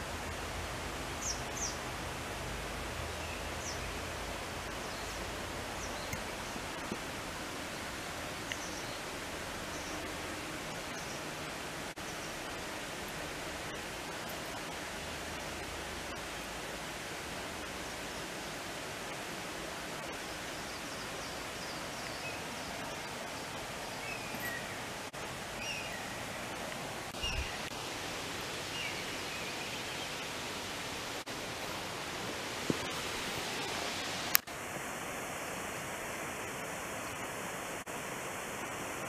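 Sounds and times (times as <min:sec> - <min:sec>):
outdoor background hiss: 0:00.0 - 0:39.0
faint bird chirps: 0:20.2 - 0:24.9, 0:27.2 - 0:27.7.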